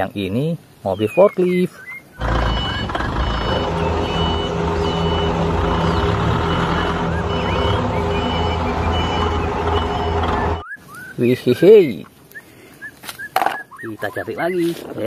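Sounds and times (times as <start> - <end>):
forklift engine running: 2.2 - 10.7
forklift warning beeps: 2.2 - 10.8.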